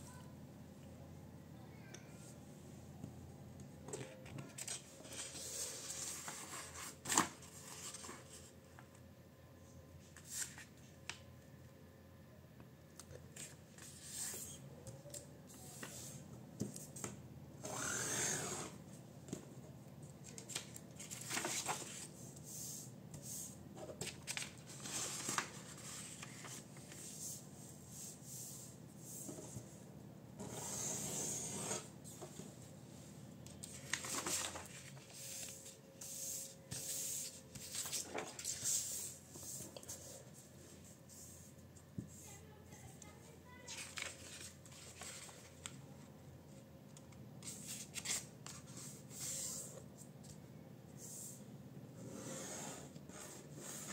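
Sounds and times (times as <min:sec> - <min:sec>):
paper rustling and folding: 0:04.0 - 0:08.5, 0:10.0 - 0:10.9, 0:20.2 - 0:22.1, 0:23.9 - 0:27.4, 0:33.5 - 0:36.1, 0:36.7 - 0:40.4, 0:43.5 - 0:45.9.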